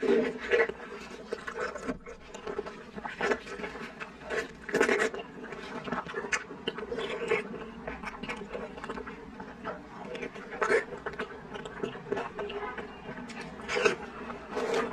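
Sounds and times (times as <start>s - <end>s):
wet chewing mouth sounds: 0.0s - 14.9s.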